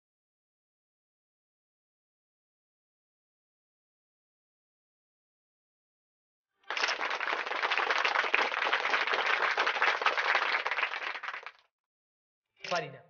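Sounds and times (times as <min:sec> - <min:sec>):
applause: 0:06.6 - 0:11.7.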